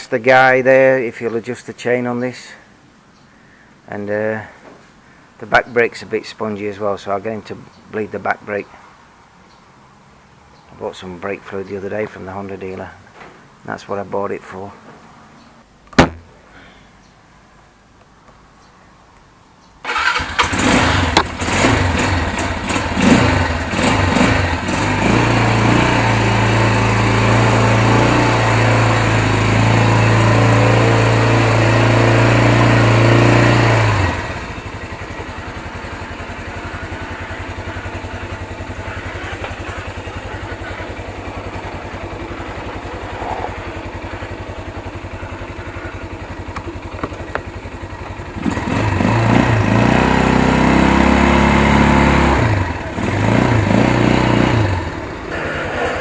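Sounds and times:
quad bike engine running: 19.9 - 56.0.

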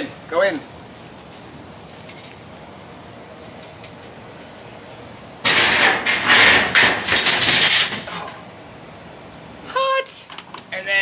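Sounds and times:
coals rattling on metal: 5.4 - 8.4.

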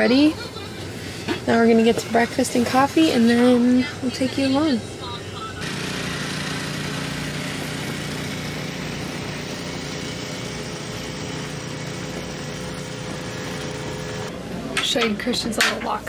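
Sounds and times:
small engine droning: 5.6 - 14.3.

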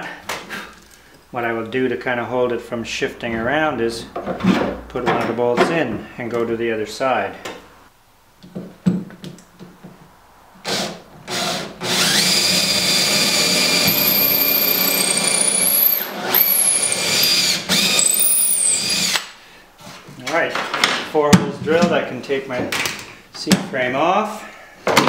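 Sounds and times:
cordless drill boring wood: 10.7 - 19.3.

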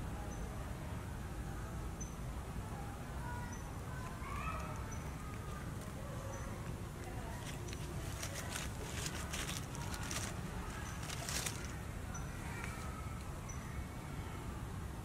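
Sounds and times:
monkey tearing at coconut husk: 7.0 - 11.8.

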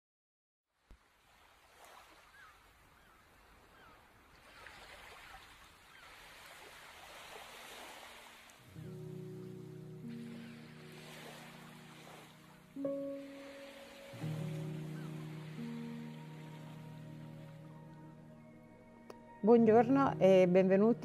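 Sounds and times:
waves lapping: 1.0 - 18.5
chirping bird calls: 14.4 - 18.6.

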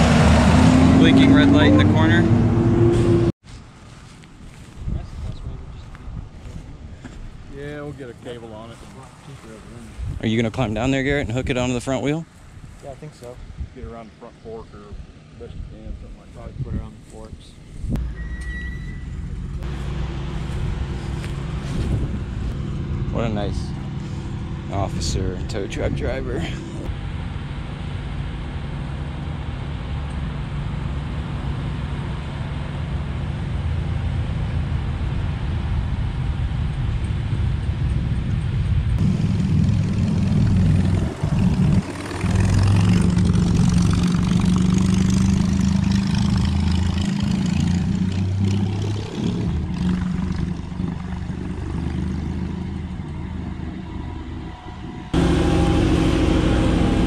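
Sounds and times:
vehicle engine running: 17.0 - 57.0.

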